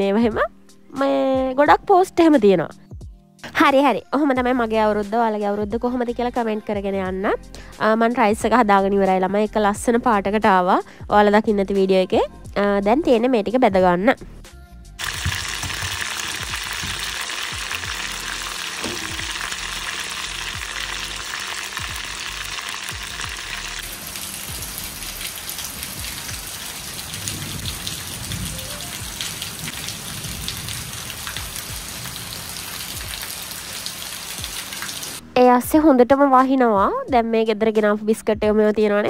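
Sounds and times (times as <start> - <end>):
food deep-frying in hot oil: 15.0 - 35.2
heavy rain falling: 15.0 - 35.2.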